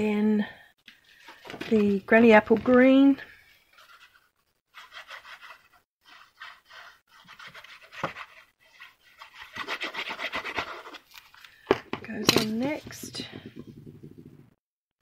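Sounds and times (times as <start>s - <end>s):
glue bottle scratching on cardstock: 3.8s - 11.0s.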